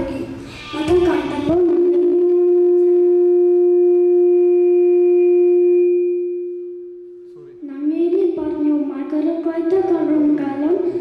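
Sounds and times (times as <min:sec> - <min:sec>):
boy singing long note: 0:00.6 - 0:07.1.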